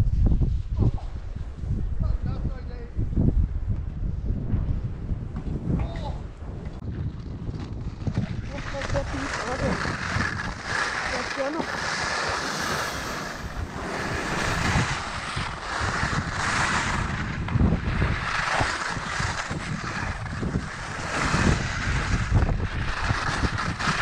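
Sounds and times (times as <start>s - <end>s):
wind buffeting microphone: 0.0s - 24.0s
skis scraping on hard snow: 6.7s - 24.0s.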